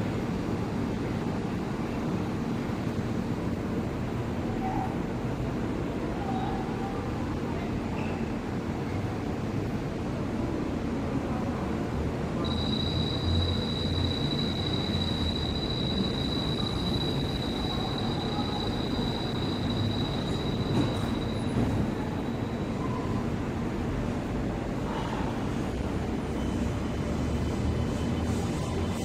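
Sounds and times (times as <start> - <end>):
train equipment humming: 12.2 - 24.7
high steady whine: 12.4 - 20.7.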